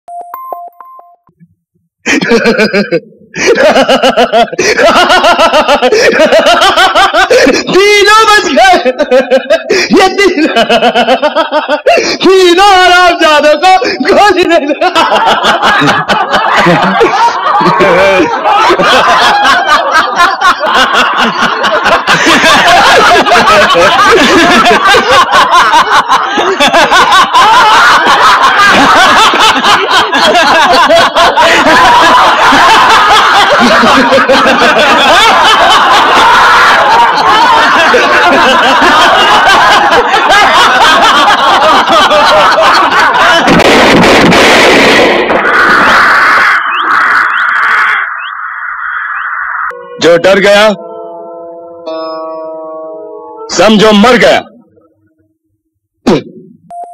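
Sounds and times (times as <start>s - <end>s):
man laughing loudly: 2.1s - 44.5s, 45.4s - 48.2s.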